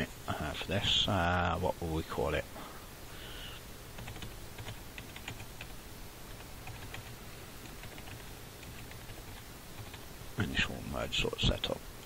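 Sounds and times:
typing on computer keyboard: 0:04.0 - 0:05.7, 0:06.3 - 0:10.1.

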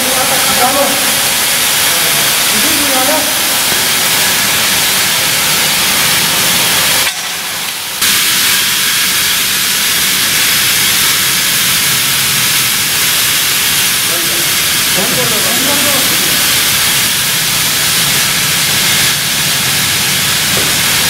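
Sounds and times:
fire sprinkler spraying water: 0:00.0 - 0:21.0.

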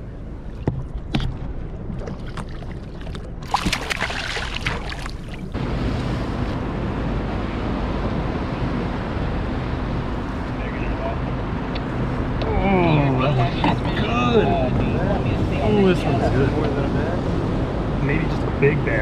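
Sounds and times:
boat engine hum: 0:00.0 - 0:19.0
wind: 0:00.0 - 0:19.0
water splashing at boat side: 0:00.5 - 0:05.6.

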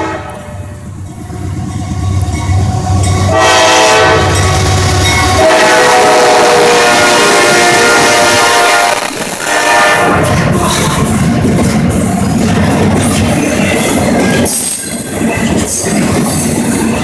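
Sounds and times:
locomotive air horn: 0:00.0 - 0:00.8, 0:03.2 - 0:10.3
diesel locomotive engines rumbling: 0:00.0 - 0:17.0.

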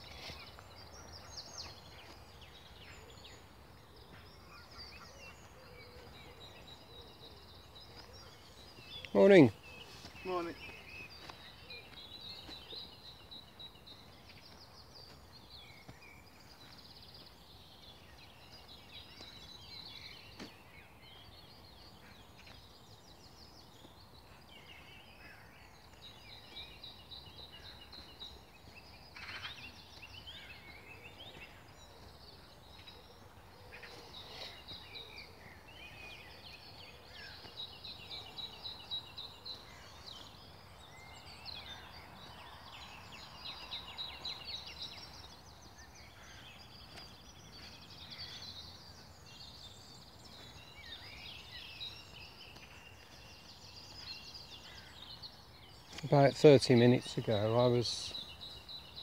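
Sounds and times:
songbirds singing: 0:00.0 - 0:59.0.

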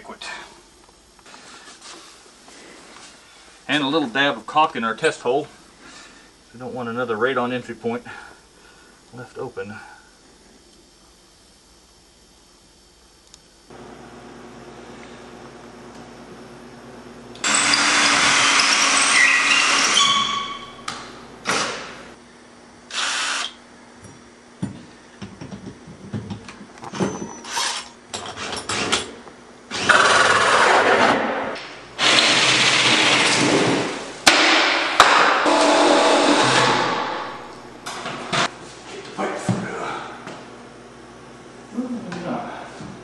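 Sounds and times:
power tool motor running: 0:17.2 - 0:22.0, 0:22.9 - 0:23.6, 0:29.7 - 0:30.9, 0:32.0 - 0:33.9, 0:35.4 - 0:37.4.

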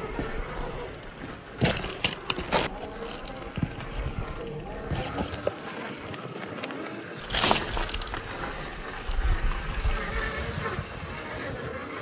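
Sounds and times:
stone crunching: 0:00.0 - 0:06.6, 0:07.2 - 0:09.5
toy car rumbling over rocks: 0:00.0 - 0:12.0.

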